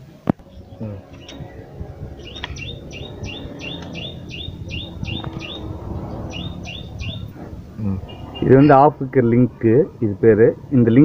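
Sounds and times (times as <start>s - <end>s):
small bird chirping: 0.4s - 8.8s.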